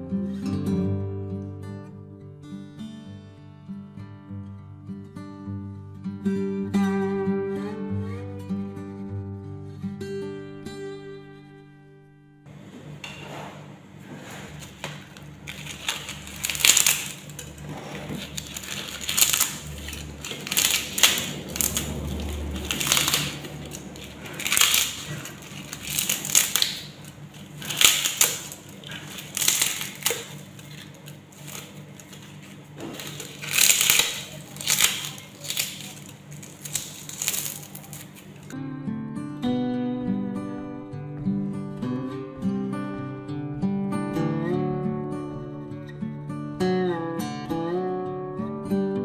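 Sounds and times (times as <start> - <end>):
dried leaves crackling: 14.1 - 38.6.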